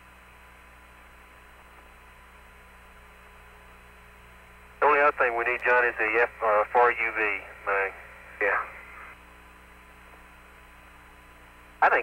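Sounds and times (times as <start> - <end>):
low electrical hum: 0.0 - 12.0
radio hiss: 4.8 - 9.2, 11.7 - 12.0
radio voice: 4.8 - 9.2.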